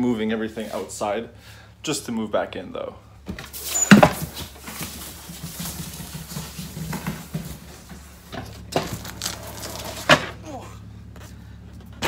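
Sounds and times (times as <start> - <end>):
armchair scuffing and handling: 3.3 - 9.6.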